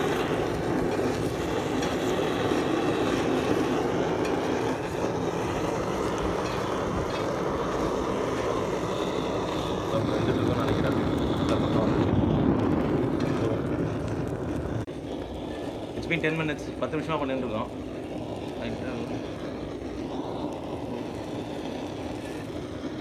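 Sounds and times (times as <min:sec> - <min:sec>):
blow torch flame rushing: 0:00.0 - 0:23.0.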